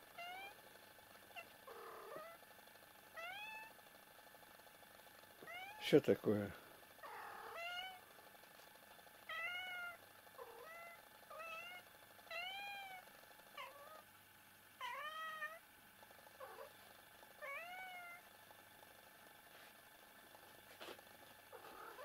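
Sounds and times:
cat meowing: 5.4 - 5.8, 7.0 - 8.0, 9.3 - 13.0, 14.8 - 15.6, 17.4 - 18.2, 21.6 - 22.0.

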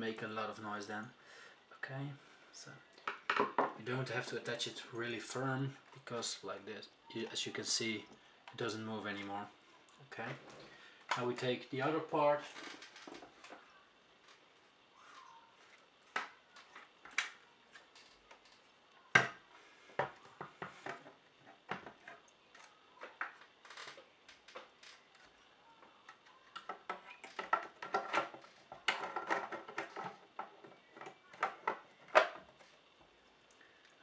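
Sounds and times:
plastic parts clicking and knocking: 3.0 - 3.8, 12.5 - 13.7, 20.0 - 32.8.

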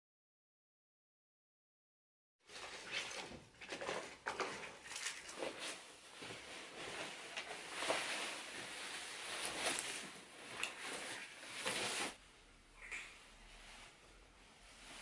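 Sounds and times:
fabric rustling: 5.0 - 12.4, 13.2 - 15.0.

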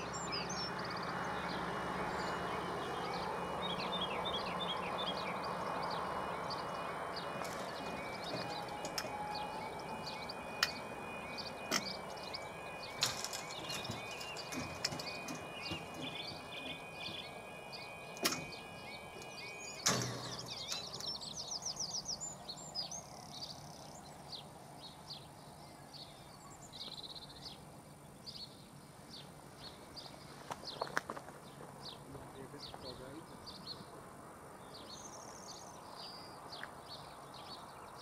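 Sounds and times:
birds chirping: 0.0 - 38.0
level crossing alarm warbling: 1.5 - 22.0
sharp clicks: 7.4 - 21.2.

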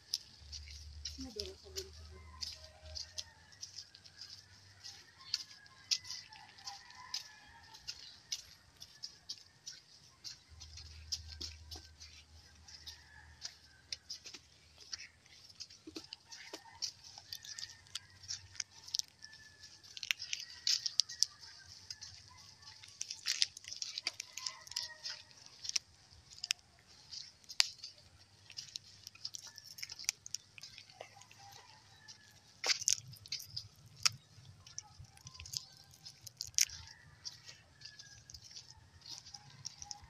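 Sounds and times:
footsteps on dry leaves and twigs: 0.0 - 40.0.

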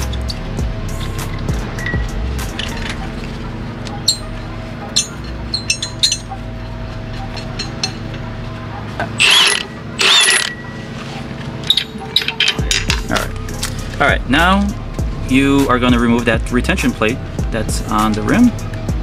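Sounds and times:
steady low hum: 0.0 - 19.0
lug nuts clinking: 1.0 - 8.4, 9.0 - 10.7, 11.6 - 13.8.

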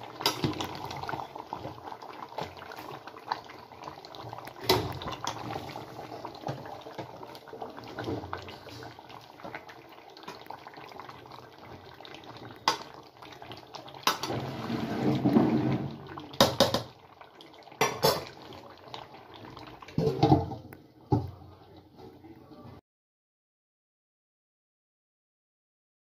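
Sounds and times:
gravy sloshing: 0.1 - 20.7.

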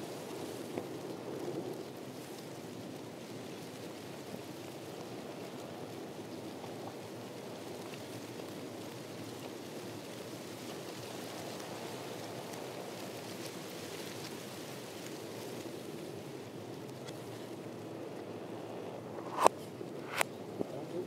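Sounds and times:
faint light ticks: 0.6 - 2.5, 4.7 - 15.6.

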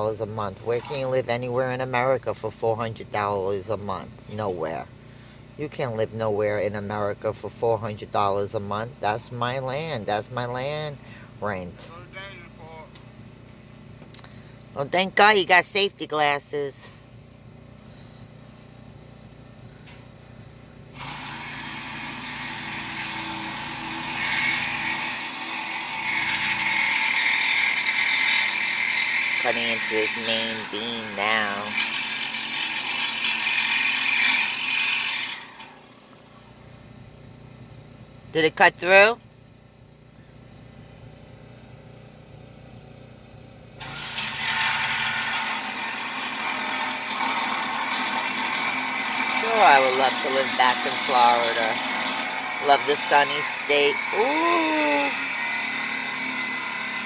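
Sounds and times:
faint motor hum: 0.0 - 57.0
power tool cutting steel: 0.6 - 1.9, 21.0 - 36.1, 43.8 - 57.0.

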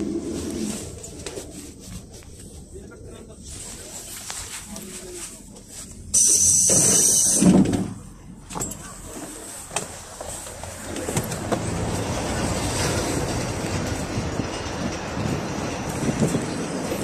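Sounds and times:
bus engine pulling away: 0.0 - 17.0
short loud hiss: 6.2 - 7.6.

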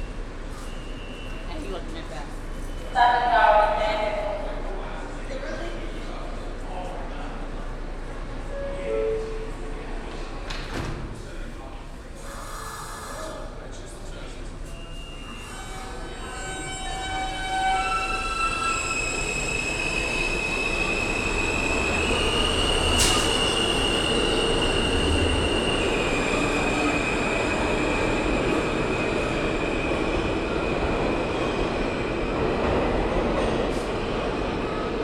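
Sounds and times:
wheels rumbling on rail: 15.6 - 35.0.

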